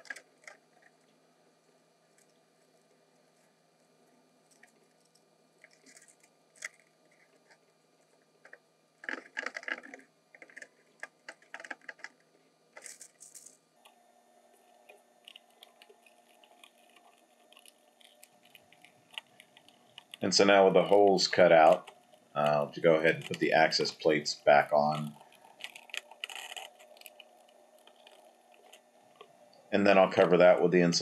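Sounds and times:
foil crinkling: 14.8 - 29.3.

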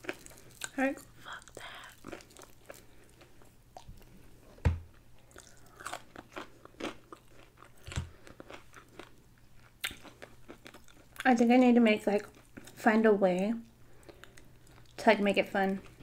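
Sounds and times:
crunching fried chicken: 0.0 - 4.1, 5.2 - 11.3
thumps: 4.6 - 5.0.

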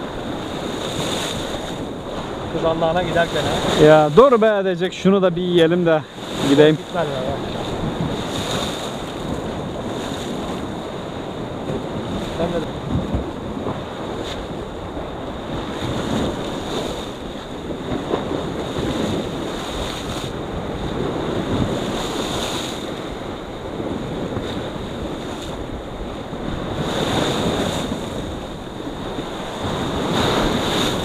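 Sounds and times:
waves on rocky shore: 0.0 - 31.0
wind buffeting microphone: 0.0 - 31.0.

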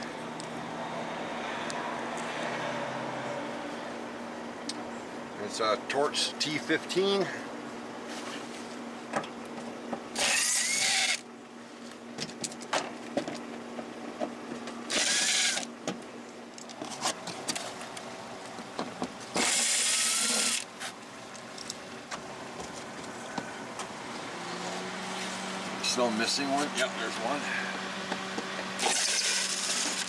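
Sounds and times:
cordless driver spinning screws: 10.2 - 11.2, 14.9 - 15.7, 19.4 - 20.7, 28.8 - 30.0.

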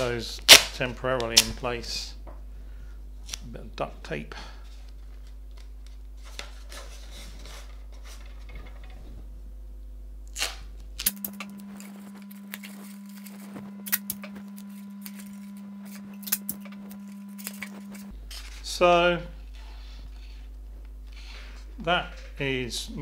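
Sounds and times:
tape crackling and ticking: 10.2 - 18.1
tape ripping off roll: 10.3 - 11.4.

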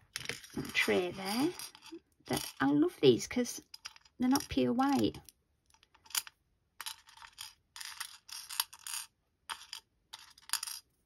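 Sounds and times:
charms clattering on plastic tray: 0.0 - 10.9.

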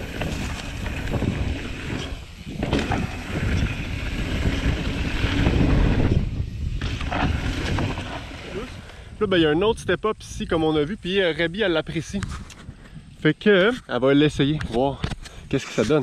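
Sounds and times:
bike knocks and rattles: 0.0 - 8.3
bike tyres rolling on dirt: 0.0 - 12.2
wind on microphone: 0.0 - 15.3.

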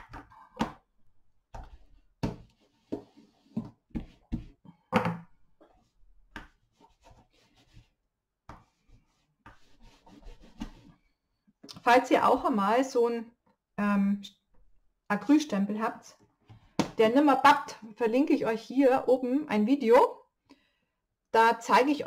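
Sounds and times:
cloth rubbing: 8.7 - 11.0.

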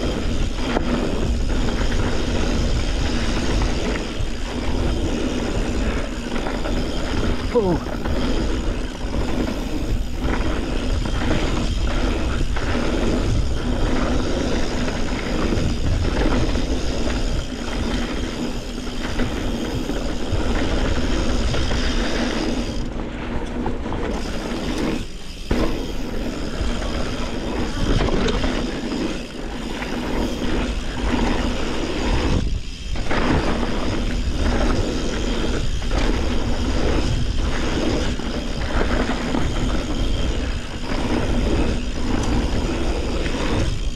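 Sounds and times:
bike rattling and knocking: 0.0 - 43.9
tyres rumbling on dirt and rock: 0.0 - 43.9
wind on the microphone: 0.0 - 43.9.

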